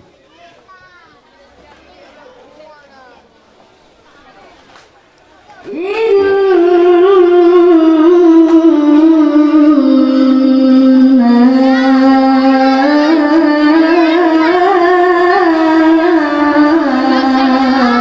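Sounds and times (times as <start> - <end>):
boy reciting melodically: 5.6 - 18.0.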